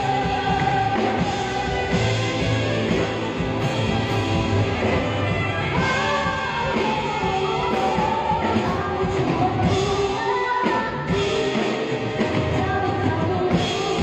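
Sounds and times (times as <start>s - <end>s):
woman singing into a microphone: 0.0s - 2.5s, 5.6s - 14.0s
electric guitar: 0.0s - 14.0s
live band playing: 0.0s - 14.0s.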